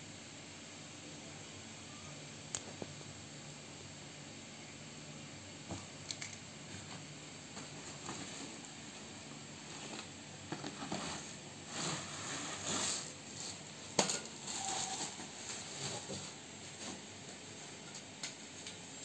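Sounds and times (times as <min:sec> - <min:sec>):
plastic wrapping rustling: 0:09.6 - 0:17.1
stand sliding out of cardboard box: 0:10.6 - 0:13.6.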